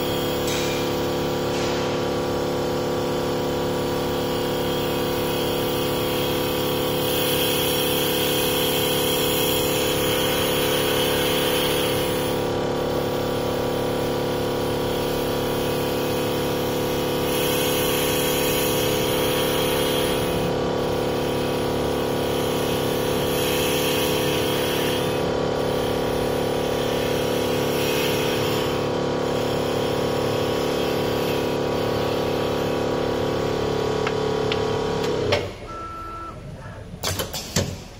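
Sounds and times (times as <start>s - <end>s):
cutting tool hiss on wood: 4.6s - 12.5s, 17.0s - 32.9s.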